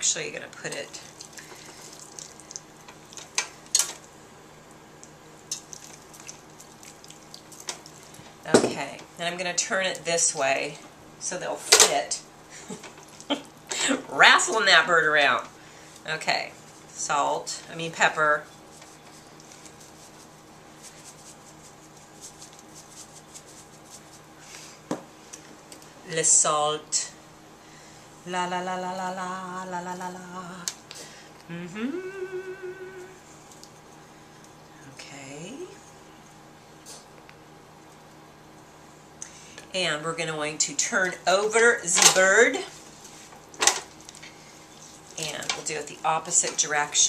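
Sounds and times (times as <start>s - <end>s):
low steady hum: 0.0s - 47.0s
wet squishes and slaps: 1.2s - 4.1s, 5.0s - 8.1s
scratchy ticks of pepper sprinkling: 18.7s - 24.3s.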